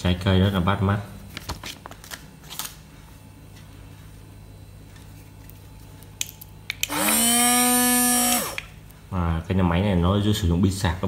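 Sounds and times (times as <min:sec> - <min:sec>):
mini blender motor whine: 0:06.9 - 0:08.7.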